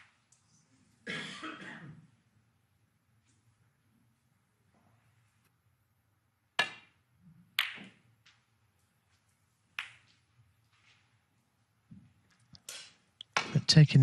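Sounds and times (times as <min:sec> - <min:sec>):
snooker balls clacking: 0:06.6 - 0:08.5, 0:09.7 - 0:10.3.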